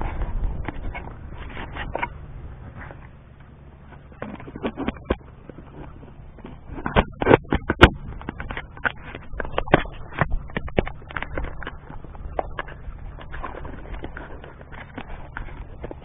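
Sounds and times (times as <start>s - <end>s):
camera handling scrapes and clicks: 3.8s - 16.0s.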